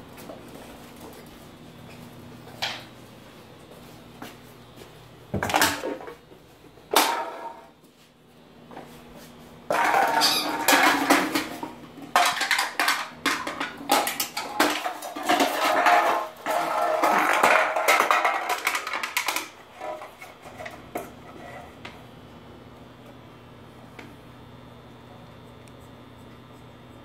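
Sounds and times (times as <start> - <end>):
can clattering on wooden floor: 5.4 - 6.2, 6.9 - 7.7, 9.7 - 21.1.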